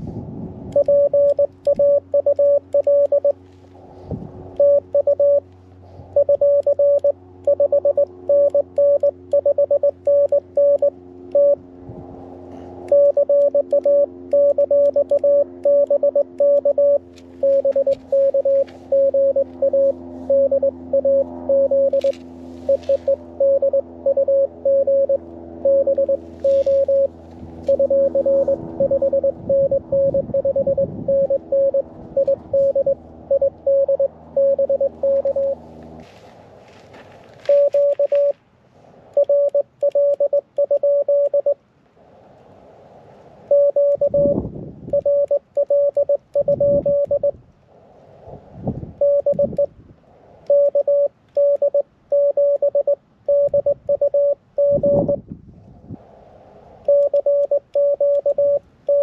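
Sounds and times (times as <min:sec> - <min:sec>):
low hum: 0:00.0 - 0:59.0
morse code tones: 0:00.7 - 0:03.4, 0:04.5 - 0:05.5, 0:06.1 - 0:11.6, 0:12.9 - 0:35.6, 0:37.4 - 0:38.4, 0:39.1 - 0:41.6, 0:43.5 - 0:47.4, 0:49.0 - 0:49.7, 0:50.4 - 0:55.2, 0:56.8 - 0:59.0.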